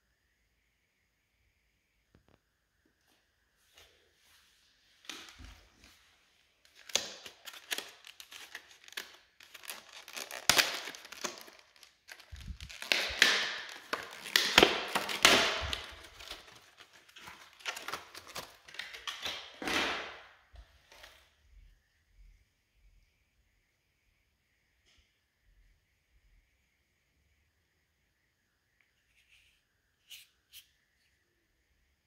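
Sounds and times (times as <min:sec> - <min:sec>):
packaging crinkling and rustling: 0:06.6 - 0:20.2.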